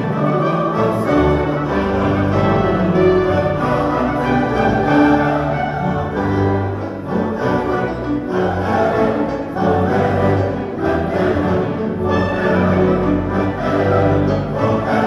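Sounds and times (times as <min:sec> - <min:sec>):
large choir singing: 0:00.0 - 0:15.0
orchestra playing: 0:00.0 - 0:15.0.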